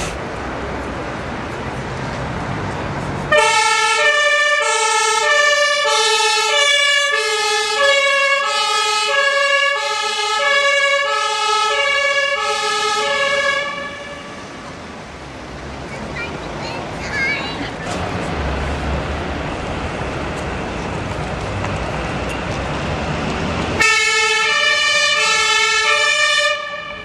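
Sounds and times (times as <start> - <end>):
two-tone emergency siren: 3.3 - 14.5, 23.8 - 27.0.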